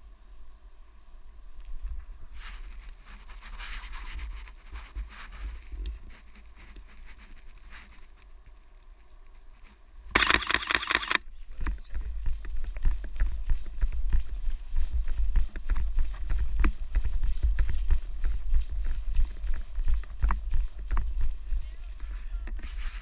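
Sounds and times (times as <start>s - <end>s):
camera shutter burst: 10.2s - 11.2s
steady low rumble: 11.2s - 22.5s
footsteps running on dirt: 11.8s - 22.1s.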